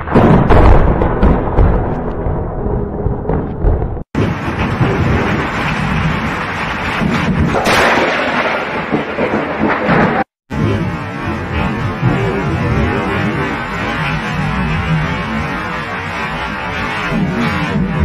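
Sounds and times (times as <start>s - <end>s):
thunder rumbling: 0.0s - 18.0s
wind: 0.0s - 18.0s
rain: 4.2s - 18.0s.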